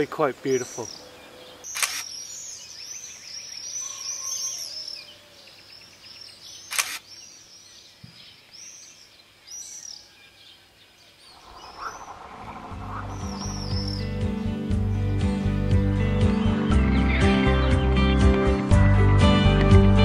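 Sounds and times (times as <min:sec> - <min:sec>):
birds chirping: 0:00.0 - 0:18.6
camera shutter release: 0:01.7 - 0:02.2, 0:06.7 - 0:07.0.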